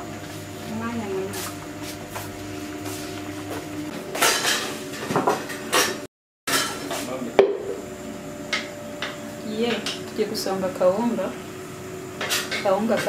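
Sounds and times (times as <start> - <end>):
dishes and utensils clinking: 4.2 - 7.0.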